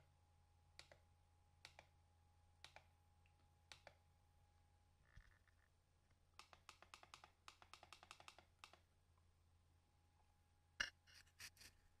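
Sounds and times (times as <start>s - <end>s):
computer mouse clicking: 0.8s - 1.0s, 1.6s - 1.9s, 2.6s - 2.9s, 3.7s - 4.0s, 6.4s - 8.8s.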